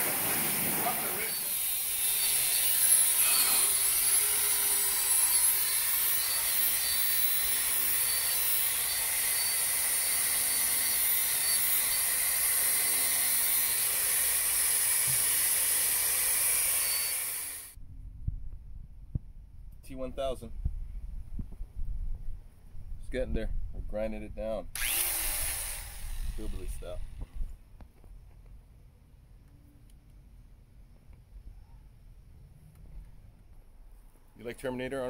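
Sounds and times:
angle grinder wire wheel on metal: 1.0 - 14.5.

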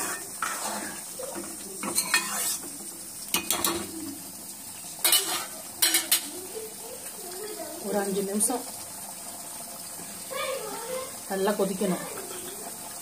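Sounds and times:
metal ladle scraping pan: 0.0 - 1.1, 1.8 - 2.7, 5.0 - 6.3.

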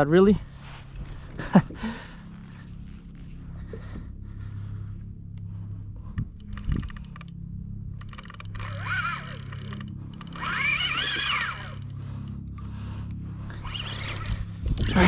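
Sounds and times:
steady low hum: 0.0 - 15.0
fishing reel clicking: 6.2 - 12.6, 13.6 - 15.0
fishing reel line buzzing: 6.2 - 12.7, 13.4 - 15.0.

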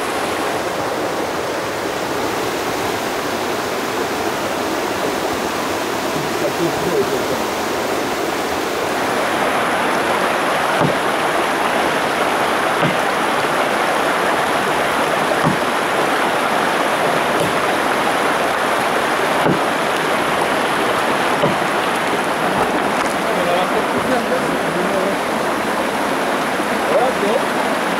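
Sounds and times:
rushing mountain stream: 0.0 - 27.9
axe chopping into log: 10.7 - 11.2, 12.8 - 13.2, 15.4 - 15.8, 17.1 - 17.8, 19.4 - 19.7, 21.4 - 22.0.

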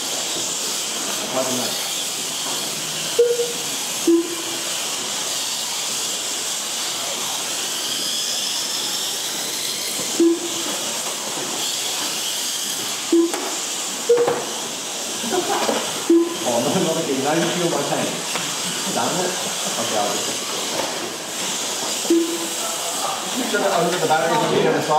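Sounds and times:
motor whines: 0.0 - 24.9
small electric motors hissing: 0.0 - 24.9
short electronic beeps: 3.2 - 4.6, 10.2 - 10.7, 13.1 - 14.4, 16.1 - 16.6, 22.1 - 22.6.

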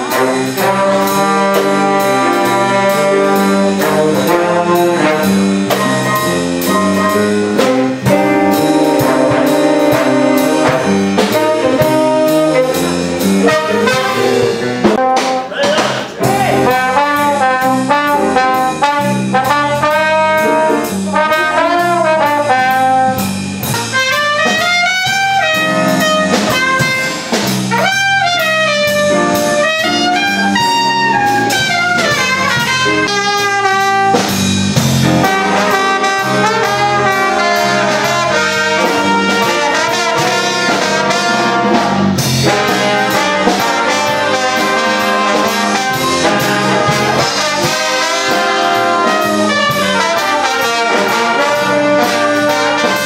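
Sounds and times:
horn line bending in pitch: 0.0 - 34.4
big band jazz: 0.0 - 53.0.

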